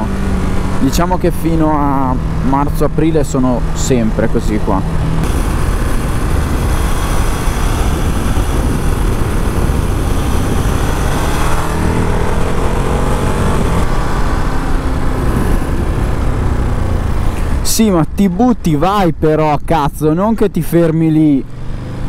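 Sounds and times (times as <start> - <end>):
motorcycle engine revving: 0.0 - 2.8, 4.7 - 17.6
wind noise: 4.8 - 19.3.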